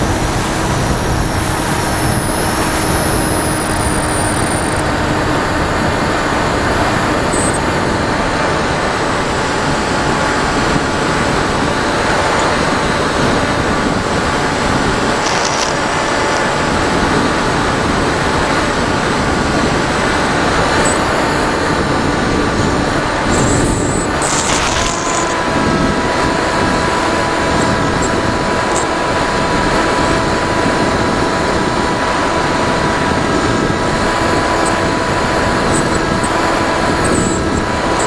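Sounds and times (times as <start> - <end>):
faint motor and propeller hum: 0.0 - 38.0
wind rushing over microphone: 0.0 - 38.0.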